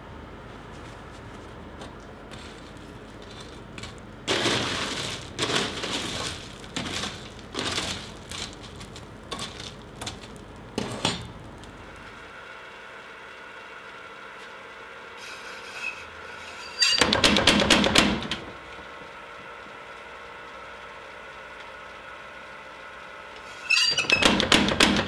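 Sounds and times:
coal crunching and scraping: 0.6 - 12.3.

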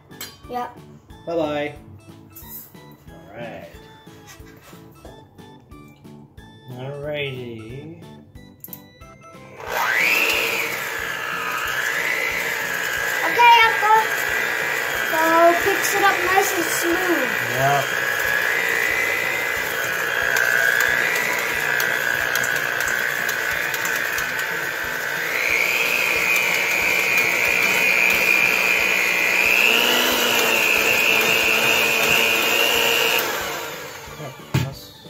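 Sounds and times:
electric hand mixer whining: 9.2 - 35.0
beaters in steel bowl: 9.6 - 34.8.

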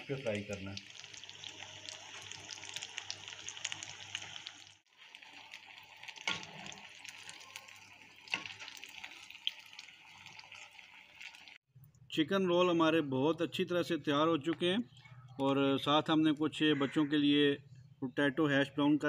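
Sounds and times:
oil crackling and sizzling: 0.0 - 11.7.

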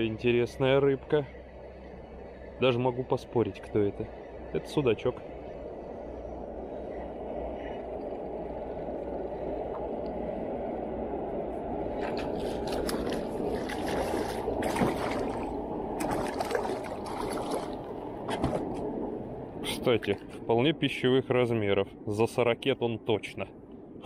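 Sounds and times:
steady low rushing: 0.0 - 24.0
fish splashing at water surface: 12.0 - 18.7.

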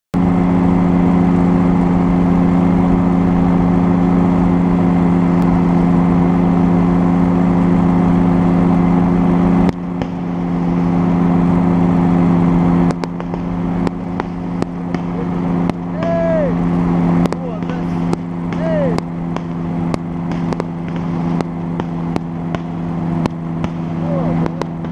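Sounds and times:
two-stroke engine and propeller: 0.2 - 24.9
fireworks bursting: 9.9 - 11.0, 12.8 - 24.9.

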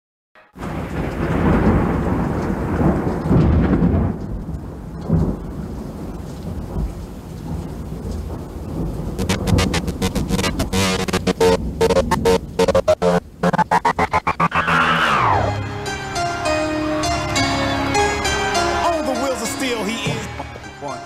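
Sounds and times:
thunder clap: 0.6 - 5.6, 6.5 - 15.4
thunder rolling: 0.6 - 5.7, 6.5 - 15.6
rain hissing: 4.6 - 17.0.

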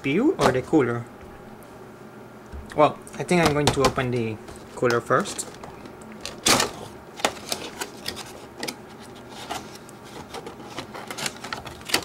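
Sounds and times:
packaging rustling: 4.4 - 12.0.

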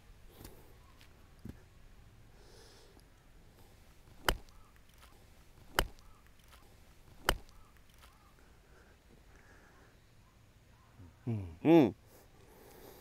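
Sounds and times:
golf club striking ball: 4.1 - 4.6, 7.1 - 7.6.

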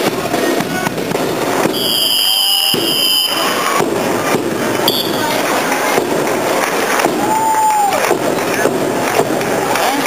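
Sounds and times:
crowd hubbub: 0.0 - 10.0
shrill whistle-like tone: 1.8 - 3.6.

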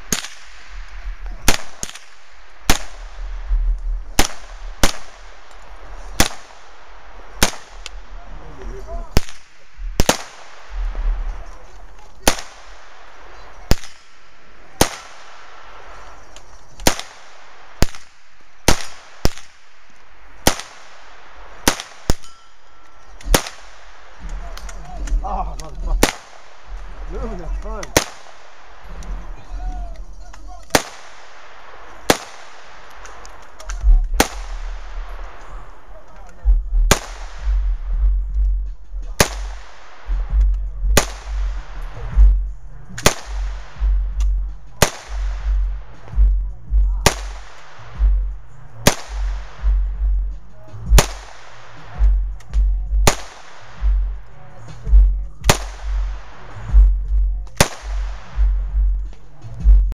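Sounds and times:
gunshots with echo: 0.0 - 59.9
music with pulsing bass: 36.4 - 59.9.

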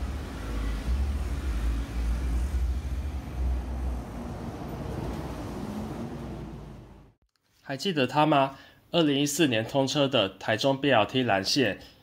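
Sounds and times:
bus engine deep rumble: 0.0 - 7.2
road traffic noise: 0.0 - 7.2.

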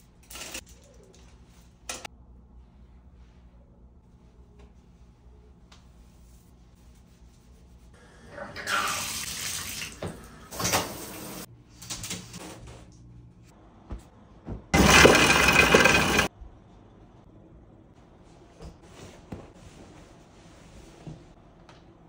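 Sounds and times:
water running from a tap: 8.5 - 11.5.

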